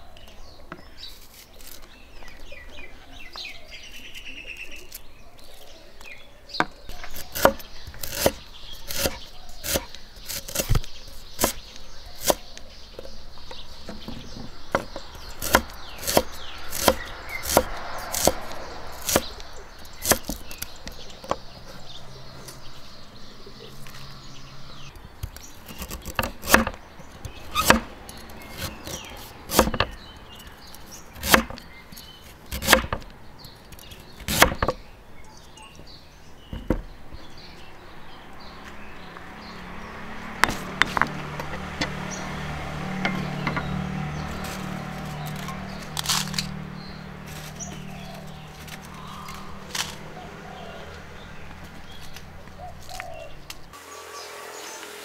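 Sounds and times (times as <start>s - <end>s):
cleaver chopping on wooden board: 6.6s - 11.6s, 13.8s - 19.4s, 20.0s - 21.4s, 25.2s - 30.0s, 31.2s - 31.7s, 32.5s - 33.1s, 34.2s - 34.8s, 40.2s - 46.6s.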